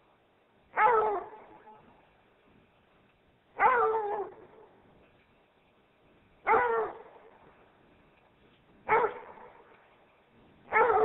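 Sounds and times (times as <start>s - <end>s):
dog barking: 0.8s - 1.8s, 3.6s - 4.7s, 6.4s - 7.4s, 8.8s - 9.7s, 10.7s - 11.0s.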